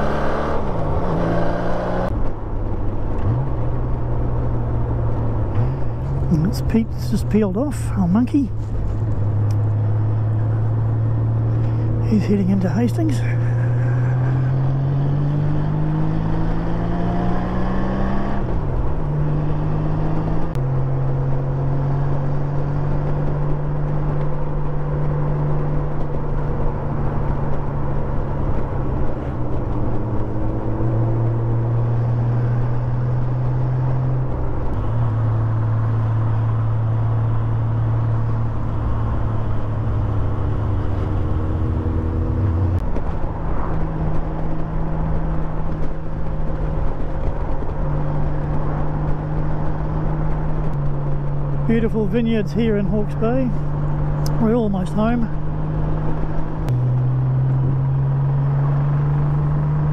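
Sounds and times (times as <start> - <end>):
wind and road rush: 0.0 - 59.9
motorcycle engine accelerating: 8.7 - 59.9.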